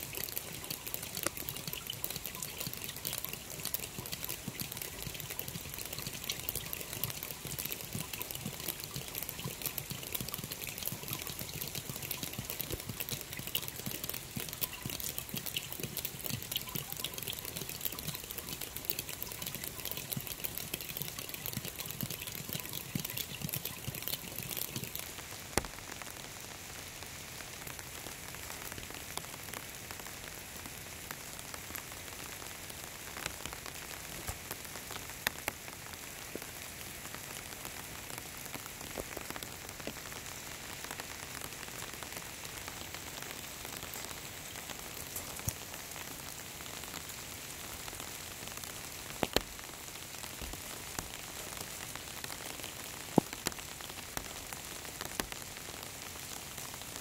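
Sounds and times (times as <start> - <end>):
steady rain hiss: 0.0 - 11.5, 24.8 - 57.0
raindrops tapping on umbrella: 0.0 - 26.2, 33.0 - 47.2, 47.8 - 57.0.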